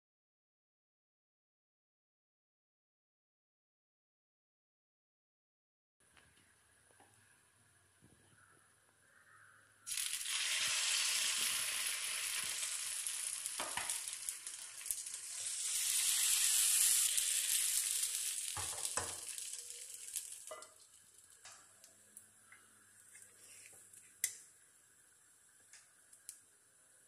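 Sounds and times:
batter sizzling in a hot pan: 9.9 - 21.9.

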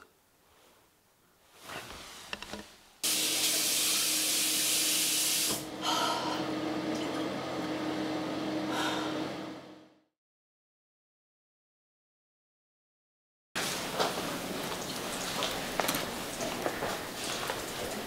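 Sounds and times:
tap water rushing into sink: 3.0 - 5.7.

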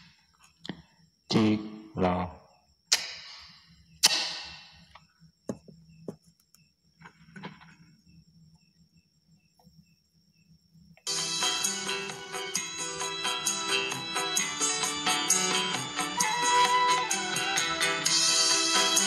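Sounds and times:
music playing: 11.1 - 19.0.

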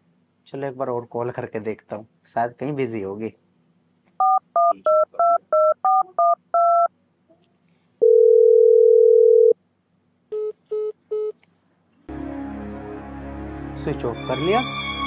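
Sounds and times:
phone keypad tones: 4.2 - 6.9, 8.0 - 9.6
long steady phone tone: 8.0 - 9.6
short phone beeps: 8.0 - 9.6.

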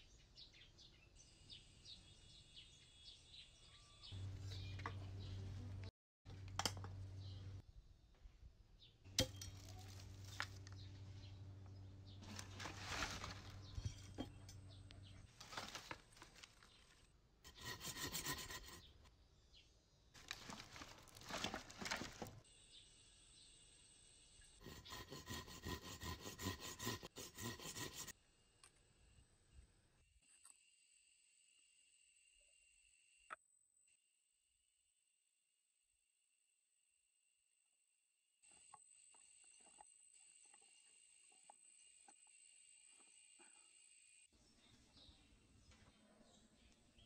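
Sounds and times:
dry branches snapping and rustling: 9.2 - 10.8, 12.2 - 14.2, 15.3 - 17.0, 20.2 - 22.4
hand saw cutting wood: 17.5 - 18.9, 24.6 - 28.1.

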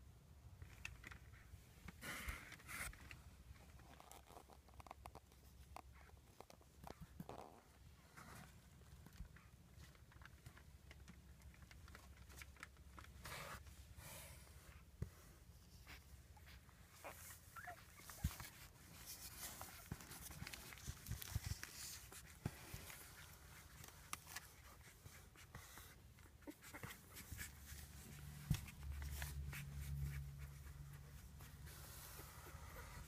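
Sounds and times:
soft rustling: 0.6 - 33.0
puppies squeaking: 16.4 - 18.7.

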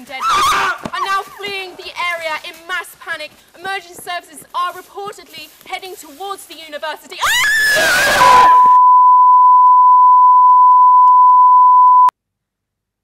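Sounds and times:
woman screaming: 0.2 - 1.2, 7.2 - 8.8
single-pitch test tone: 8.5 - 12.1.

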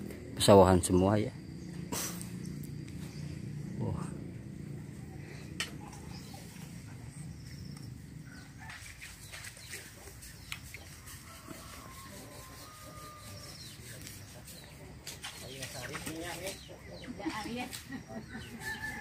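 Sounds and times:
steady low rumble: 0.0 - 9.3.

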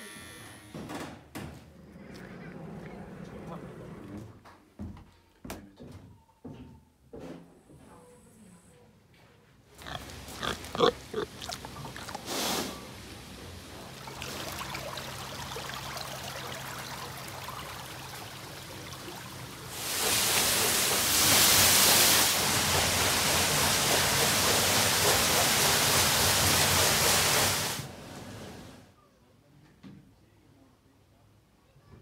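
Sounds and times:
water rushing at water wheel: 10.1 - 28.7.

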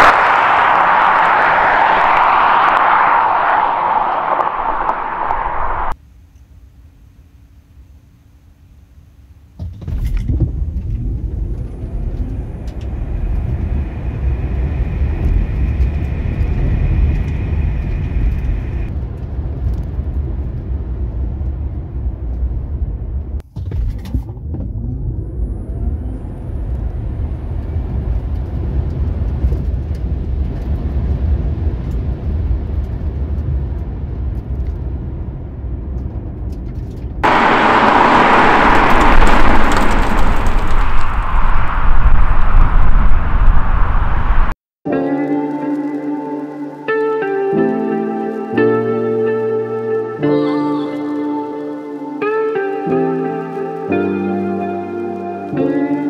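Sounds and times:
loud rushing noise: 0.0 - 6.0, 37.2 - 44.6
road and tyre rumble: 0.0 - 6.0, 9.6 - 44.6.

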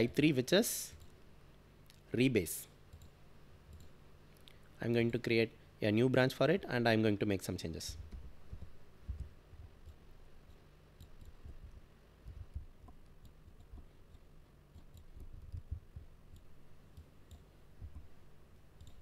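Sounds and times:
soft low thuds: 7.9 - 9.8, 15.0 - 16.2, 17.8 - 18.2.

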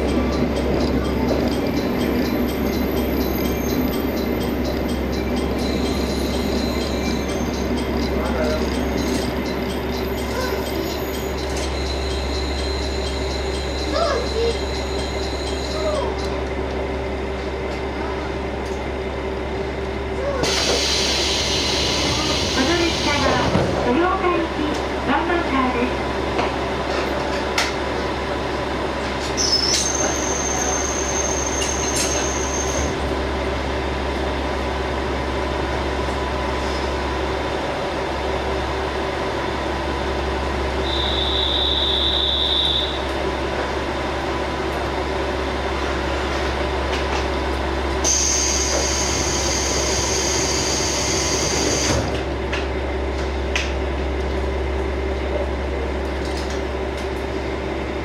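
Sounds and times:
diesel railcar running: 0.0 - 58.0
high-pitched wheel squeals: 29.3 - 32.9, 40.8 - 43.1.

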